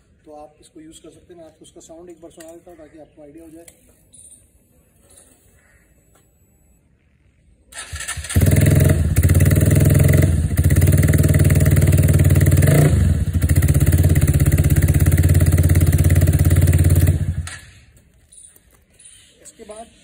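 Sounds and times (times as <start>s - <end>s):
motorcycle engine idling and revving: 7.8s - 18.0s.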